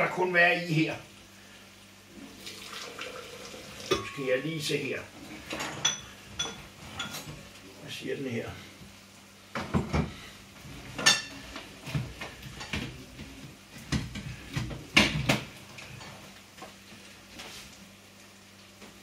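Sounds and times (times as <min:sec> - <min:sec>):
kitchenware clinking on a counter: 0:03.9 - 0:04.3, 0:05.5 - 0:07.4, 0:11.0 - 0:11.4.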